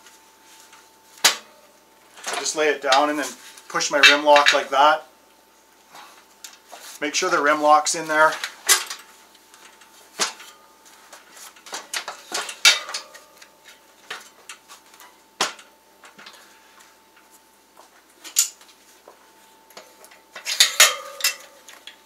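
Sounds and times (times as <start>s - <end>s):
metallic clinks and knocks: 20.4s - 22.0s.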